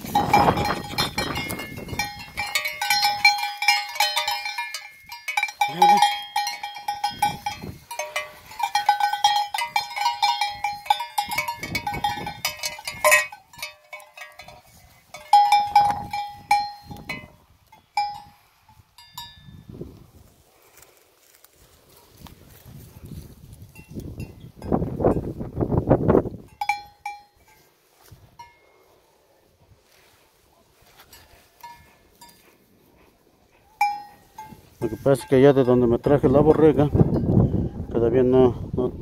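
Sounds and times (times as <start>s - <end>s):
sheep bell clanking: 0.0s - 19.7s, 23.7s - 25.4s, 26.4s - 27.7s, 28.3s - 29.0s, 31.0s - 32.6s, 33.8s - 37.4s.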